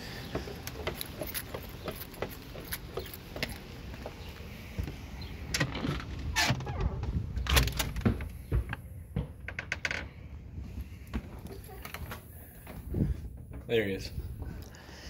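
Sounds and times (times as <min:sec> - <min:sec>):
footsteps on wooden deck: 0:00.0 - 0:15.0
keys rattling: 0:00.6 - 0:03.7
door pushed open: 0:05.5 - 0:08.7.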